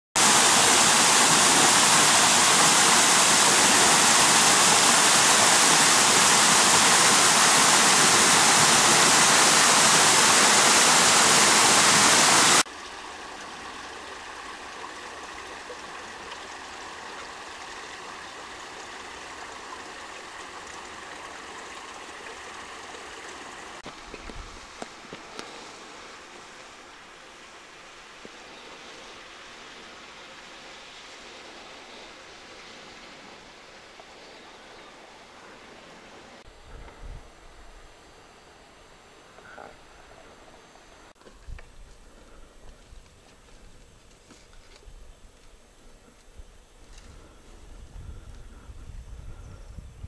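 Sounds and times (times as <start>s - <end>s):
waterfall splashing into pool: 0.2s - 24.0s.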